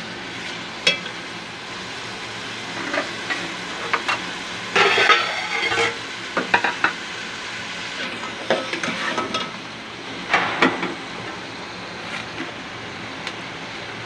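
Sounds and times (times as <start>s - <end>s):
food sizzling in oil: 0.0s - 14.0s.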